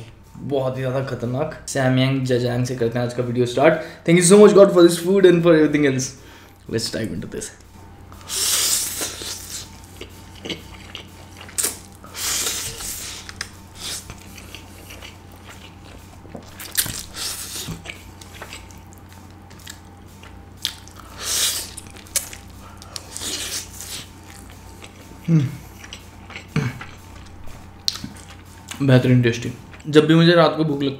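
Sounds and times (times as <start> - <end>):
fan humming: 0.0 - 30.9
wet chewing: 7.6 - 28.8
loud slurping: 8.2 - 16.1, 20.9 - 24.2.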